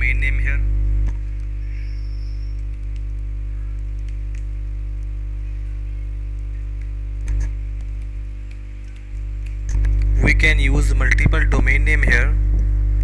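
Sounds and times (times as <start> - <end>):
electrical mains hum: 0.0 - 13.0
faint clicks: 1.0 - 5.7.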